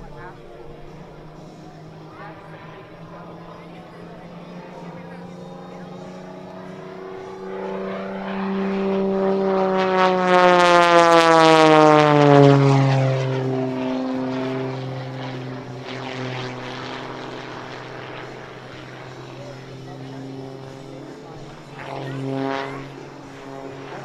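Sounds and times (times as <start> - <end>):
propeller plane passing by: 0.0 - 24.0.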